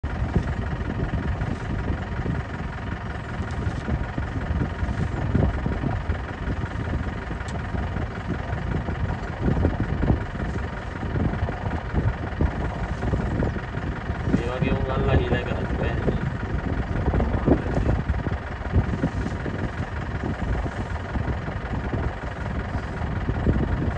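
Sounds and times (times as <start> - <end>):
vehicle engine idling: 0.0 - 23.9.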